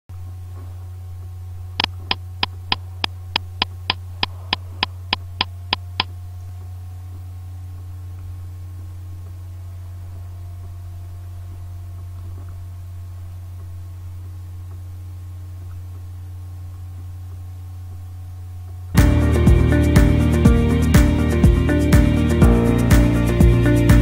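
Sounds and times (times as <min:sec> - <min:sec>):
low electrical hum: 0:00.1 - 0:24.0
sharp evenly spaced clicks: 0:01.8 - 0:06.1.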